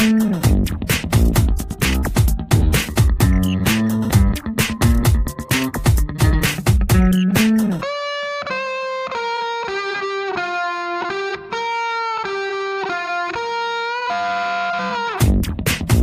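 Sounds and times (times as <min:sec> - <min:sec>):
steady beat: 0:00.0 - 0:07.9, 0:15.2 - 0:16.0
melodic lead line: 0:02.4 - 0:11.8.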